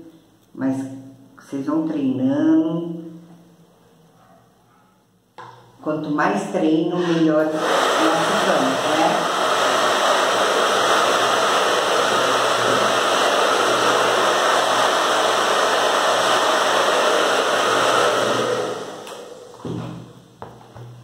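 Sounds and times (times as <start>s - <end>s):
hair dryer blowing: 7.0s - 20.2s.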